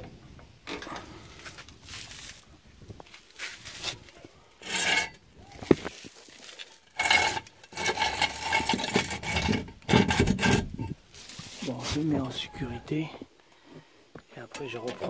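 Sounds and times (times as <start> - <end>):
metal scraping on concrete: 4.6 - 5.2, 6.8 - 12.1.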